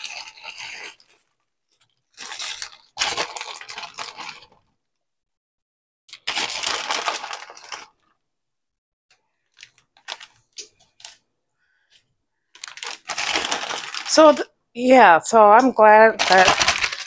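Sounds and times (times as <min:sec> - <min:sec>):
plastic bag crinkling: 0:00.0 - 0:04.6, 0:06.1 - 0:08.2, 0:09.4 - 0:11.2, 0:12.5 - 0:14.4, 0:15.8 - 0:17.0.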